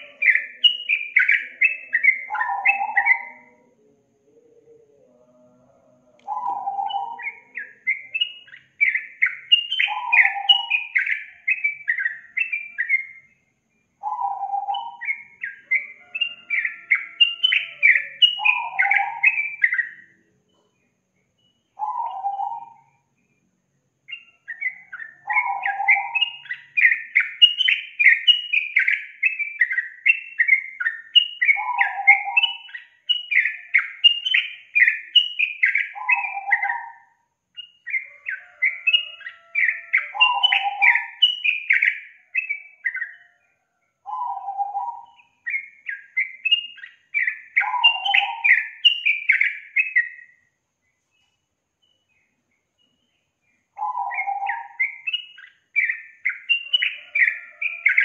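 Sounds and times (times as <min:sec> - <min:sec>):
bird singing chattering notes: 0:00.0 - 0:03.6, 0:06.2 - 0:20.1, 0:21.4 - 0:22.9, 0:37.6 - 0:43.4, 0:44.0 - 0:50.3, 0:51.2 - 0:58.0.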